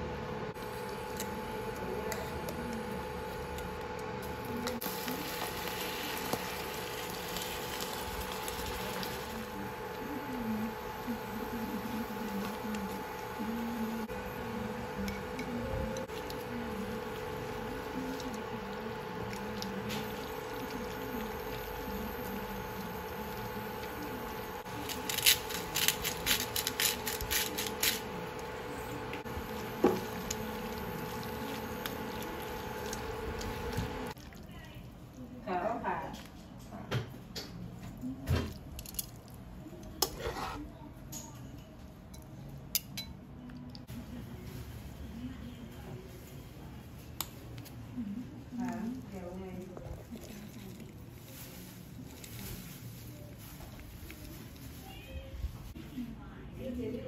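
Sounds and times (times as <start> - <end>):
steady hum: 0.0 - 36.1
wok sizzling: 4.6 - 15.3, 15.9 - 34.2
pasta tossed in sauce in a pan: 4.8 - 9.9
spoon scraping a can: 40.0 - 40.7.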